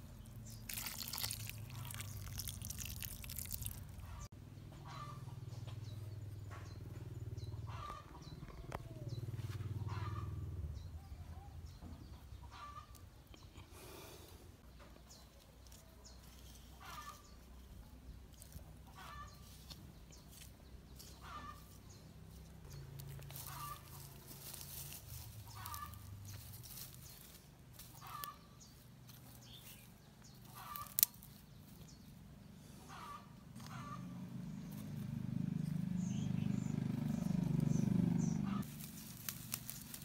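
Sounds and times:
fowl calling: 9.8s - 10.4s, 21.2s - 21.8s, 23.4s - 24.1s, 25.4s - 26.1s, 28.0s - 28.4s, 30.4s - 31.2s, 32.7s - 34.1s.

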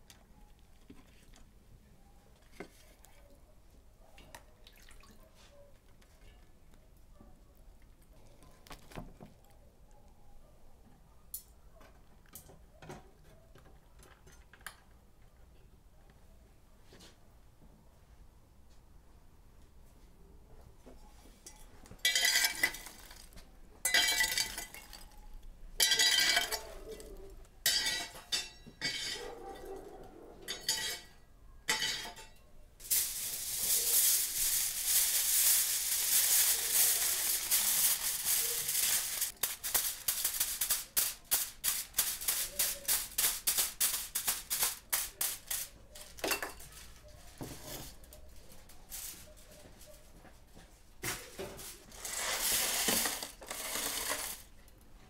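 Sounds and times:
aluminium foil crinkling: 22.0s - 25.4s, 32.8s - 47.4s, 51.2s - 54.6s.

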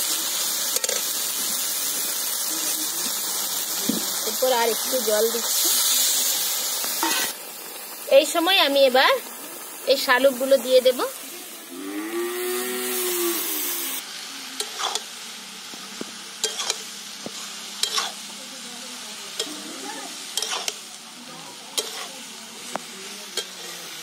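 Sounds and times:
food sizzling in a pan: 0.0s - 24.0s
metal spatula scraping a pan: 0.7s - 1.1s, 7.0s - 7.4s, 14.6s - 15.1s, 16.4s - 18.2s, 19.4s - 20.8s, 21.7s - 22.3s.

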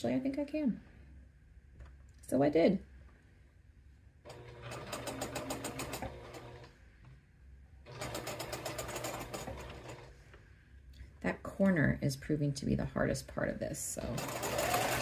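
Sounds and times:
sewing machine stitching: 4.3s - 6.7s, 7.9s - 10.1s, 14.0s - 15.0s.

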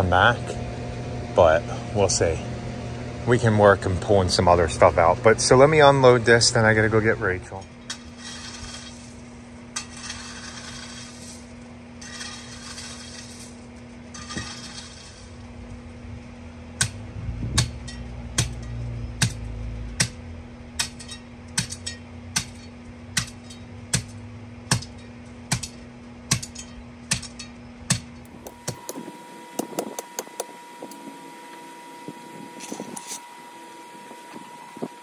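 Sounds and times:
hand tamper pounding gravel: 5.4s - 15.9s, 16.8s - 35.0s
crushed stone being scraped: 8.0s - 15.4s, 32.2s - 33.3s.

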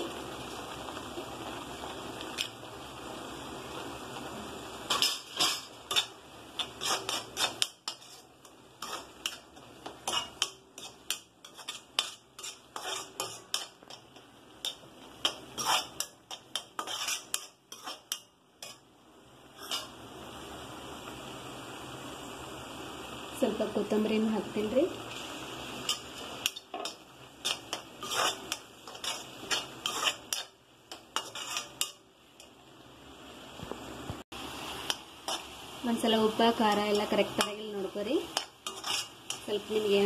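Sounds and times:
paste sizzling in oil: 0.0s - 40.0s
metal ladle clinking and scraping: 4.9s - 18.8s, 25.2s - 32.0s, 38.3s - 39.5s.

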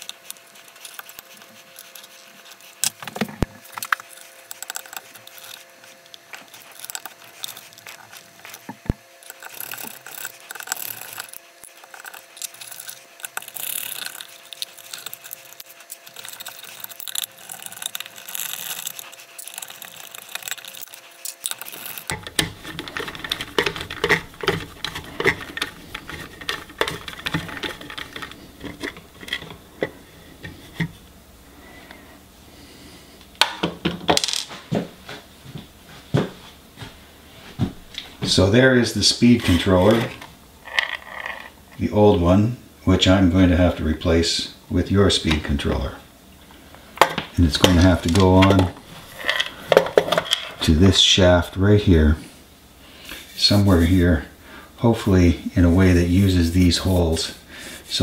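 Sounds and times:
screwdriver clicking on screws: 0.0s - 30.0s.

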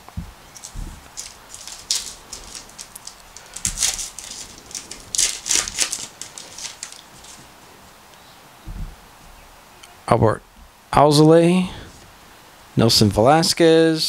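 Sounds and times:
wrapper crinkling and tearing: 0.5s - 7.5s.

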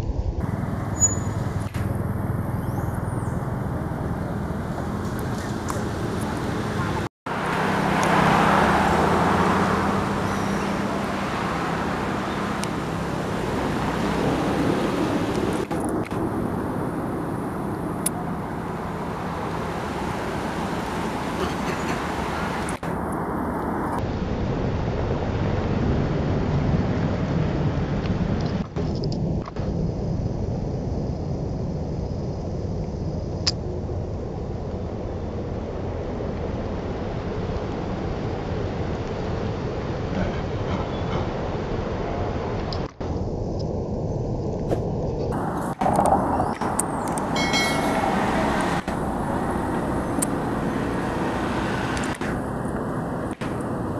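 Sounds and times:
low hum: 0.0s - 53.9s
low rumbling noise: 0.0s - 53.9s
road traffic: 0.0s - 53.9s
faint high steady tone: 47.3s - 49.2s.

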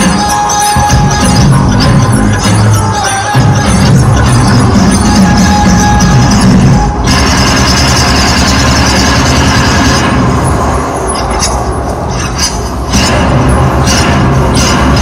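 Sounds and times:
rapid sharp cracks: 7.1s - 10.3s, 12.2s - 15.0s
rumbling battle din: 12.2s - 15.0s.

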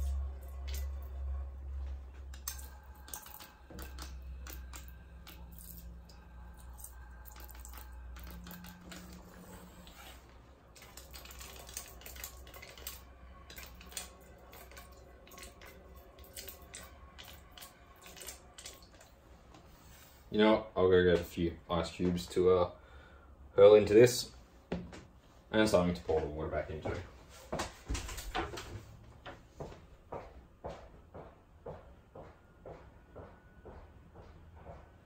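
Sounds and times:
low hum: 0.0s - 23.6s.

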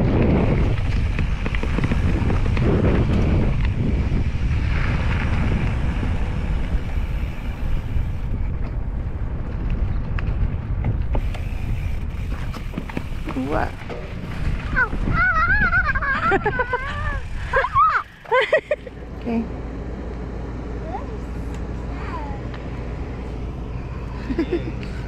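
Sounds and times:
wind buffeting microphone: 0.0s - 19.8s.

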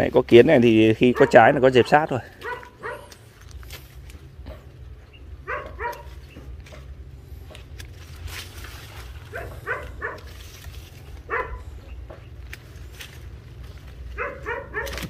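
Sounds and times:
pruning shears snipping: 0.0s - 4.8s, 5.4s - 15.0s
dog barking: 1.0s - 3.2s, 5.4s - 6.2s, 9.3s - 10.3s, 11.3s - 11.7s, 14.1s - 15.0s.

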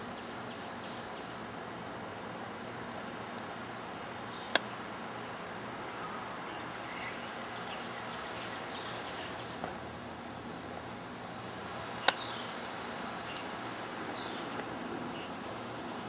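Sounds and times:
outdoor background hiss: 0.0s - 16.0s
sharp click: 4.5s - 4.7s, 12.0s - 12.3s.

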